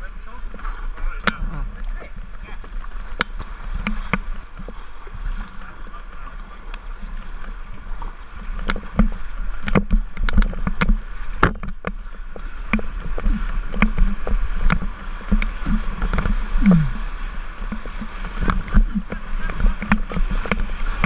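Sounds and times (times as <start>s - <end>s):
paddle strokes: 0.0s - 21.0s
river rapids rushing: 0.0s - 21.0s
sharp water splashes: 0.0s - 21.0s
knocks against boat: 8.5s - 17.1s, 17.7s - 21.0s
short falling groan: 16.6s - 17.1s.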